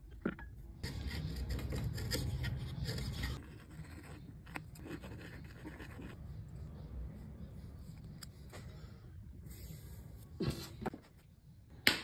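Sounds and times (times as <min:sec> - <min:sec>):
chisel scraping wood: 0:00.9 - 0:04.2.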